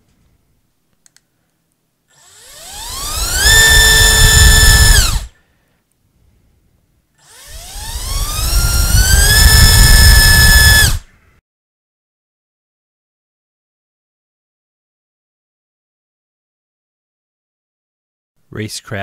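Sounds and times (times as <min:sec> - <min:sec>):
motor and propeller whining: 0:02.1 - 0:05.4, 0:07.2 - 0:11.1.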